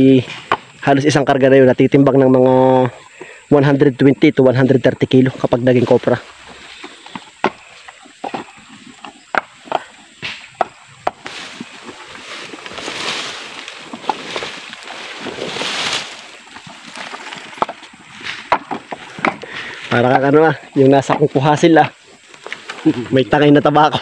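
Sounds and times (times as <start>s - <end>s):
coconut shells knocking together: 9.3s - 11.3s, 17.6s - 19.6s
rushing rustling noise: 11.2s - 18.4s.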